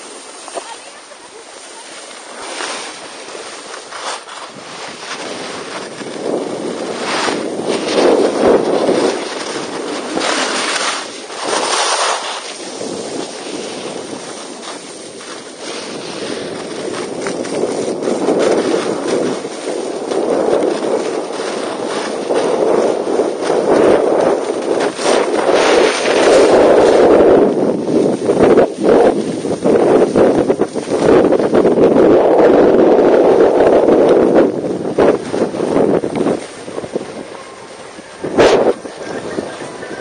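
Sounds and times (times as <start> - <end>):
snowboard scraping over snow: 0.0 - 40.0
wind rushing over microphone: 0.0 - 40.0.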